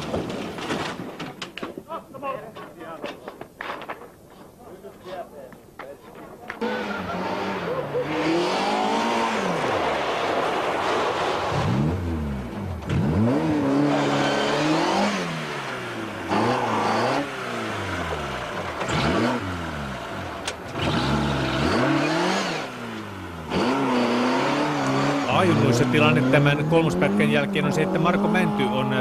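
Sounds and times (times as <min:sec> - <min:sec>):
rally car engine revving: 0:06.6 - 0:29.0.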